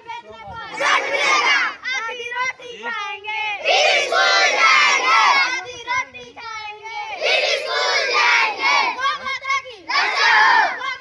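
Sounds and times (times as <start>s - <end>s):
children shouting together: 0.7s - 2.1s, 3.6s - 6.1s, 6.8s - 11.0s.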